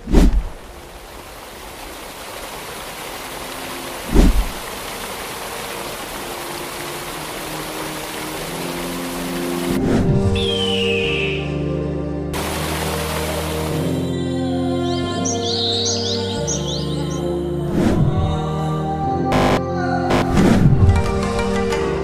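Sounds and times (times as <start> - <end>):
faint sustained music tones: 5.0 - 17.7.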